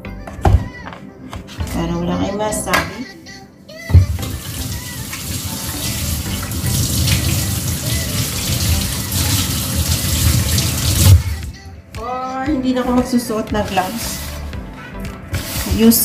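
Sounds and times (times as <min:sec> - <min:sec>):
tap running into sink: 0:03.9 - 0:11.4.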